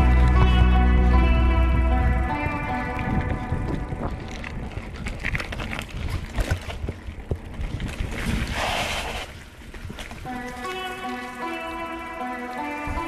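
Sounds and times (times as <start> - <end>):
wind buffeting microphone: 0.0 - 13.0
bicycle clicks and rattles: 2.2 - 8.4.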